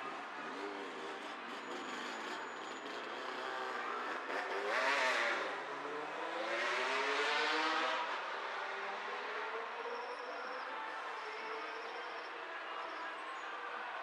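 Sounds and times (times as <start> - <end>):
car engines speeding up: 0.0 - 9.7
vehicles passing: 0.0 - 11.1.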